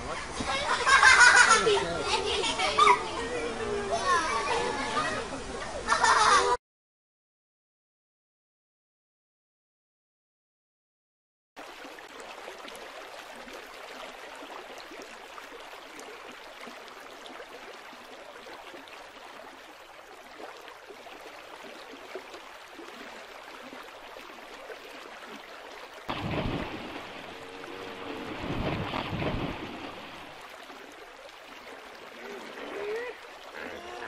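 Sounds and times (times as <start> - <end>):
rushing splashing water: 11.6 - 34.0.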